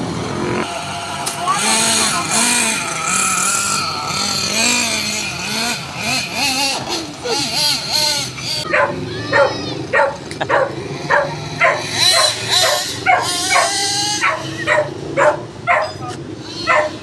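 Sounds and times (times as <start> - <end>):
remote-control car engine humming: 0.0 - 17.0
dog barking: 8.7 - 17.0.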